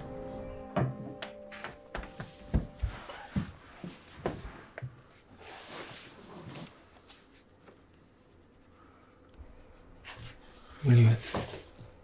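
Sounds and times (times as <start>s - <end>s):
pencil scratching on paper: 8.1s - 9.2s.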